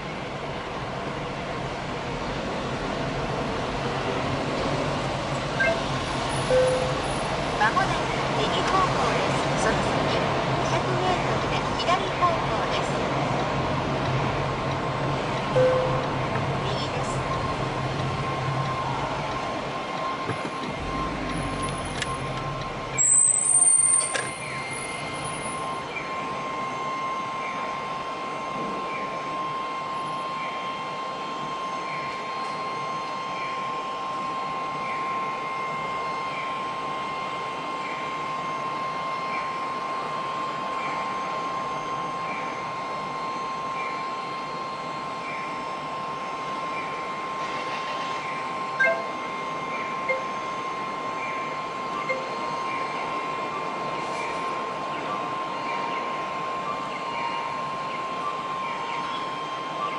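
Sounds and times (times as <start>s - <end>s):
street traffic hum: 0.0s - 59.9s
loud high-pitched squeal: 23.0s - 27.5s.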